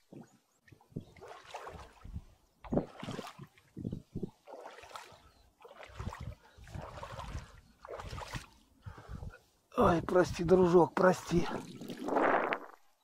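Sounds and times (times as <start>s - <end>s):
boots wading through water: 0.1s - 9.7s.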